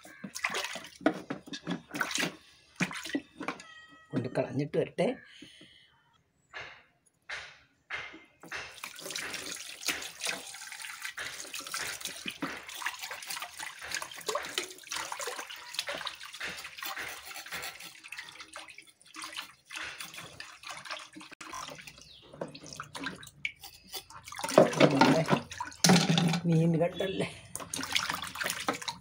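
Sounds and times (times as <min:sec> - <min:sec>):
splashing and clattering: 0:00.0 - 0:04.3, 0:07.9 - 0:29.0
tap water running into sink: 0:08.7 - 0:26.6, 0:27.6 - 0:29.0.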